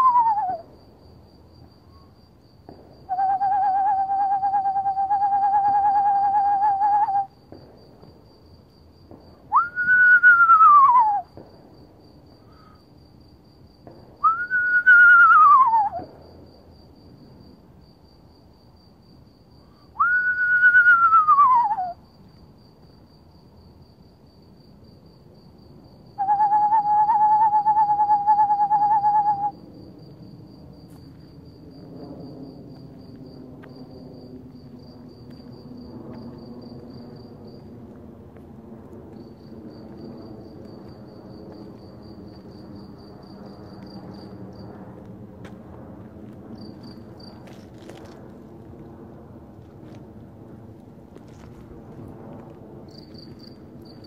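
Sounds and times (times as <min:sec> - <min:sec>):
owl whinnies: 0:00.0 - 0:00.6, 0:03.1 - 0:07.3, 0:14.4 - 0:16.0, 0:20.0 - 0:22.0, 0:26.2 - 0:29.5
owl trill: 0:00.0 - 0:00.7, 0:03.1 - 0:07.3, 0:14.3 - 0:16.1, 0:20.0 - 0:22.0, 0:26.2 - 0:29.6
crickets chirping: 0:00.0 - 0:54.0.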